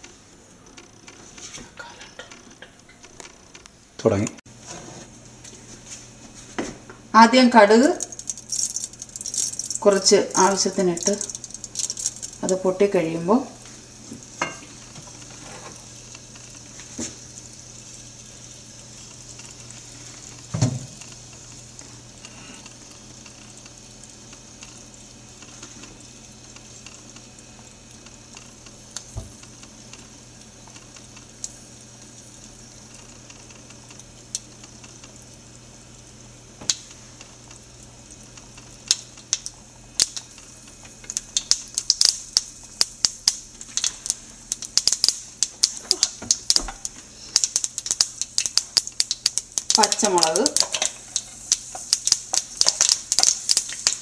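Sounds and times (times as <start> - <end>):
seeds sizzling in hot oil: 7.0 - 54.0
seeds popping: 8.0 - 12.6, 41.2 - 54.0.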